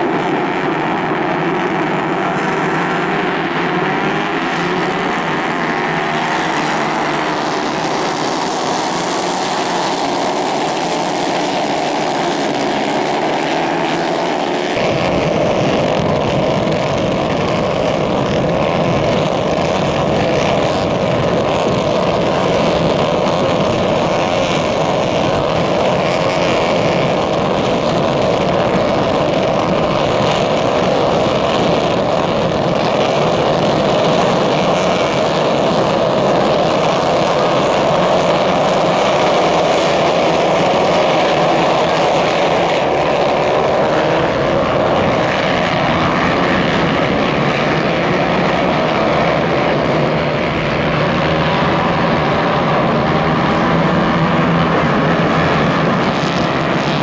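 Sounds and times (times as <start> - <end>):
kart engines droning: 0.0 - 57.0.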